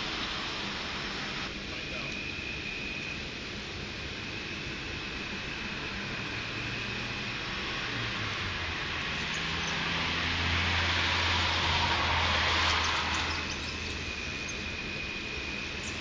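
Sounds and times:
car passing: 4.2s - 16.0s.

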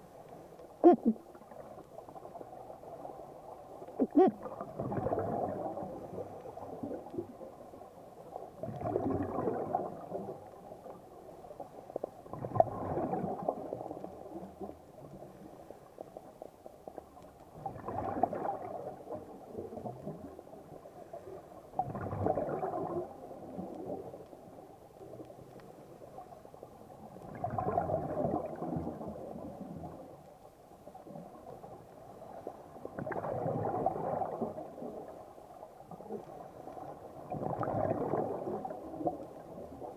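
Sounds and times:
underwater regulator bubbling: 0.8s - 1.3s, 3.9s - 5.7s.

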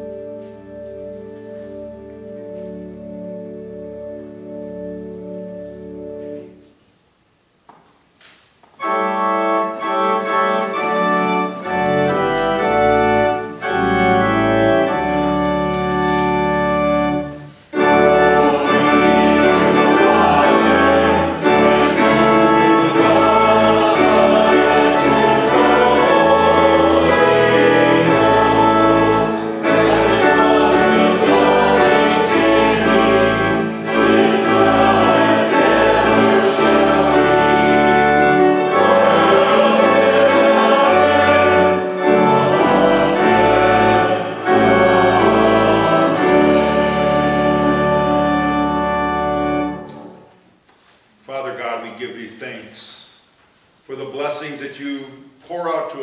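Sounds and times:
organ chords: 0.0s - 7.7s, 8.7s - 53.1s
congregation singing a hymn: 8.8s - 50.3s.

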